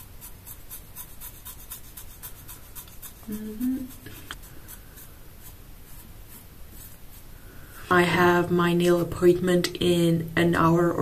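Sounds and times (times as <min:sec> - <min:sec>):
razor scraping hair: 0:00.0 - 0:08.3
person humming briefly: 0:03.3 - 0:04.0.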